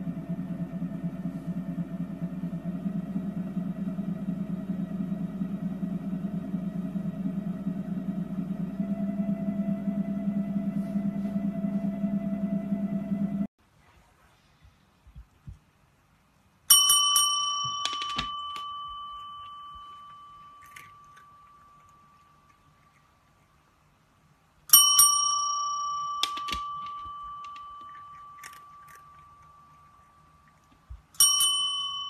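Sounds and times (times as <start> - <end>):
service bell ding: 16.7 - 22.0, 24.7 - 29.8, 31.2 - 32.0.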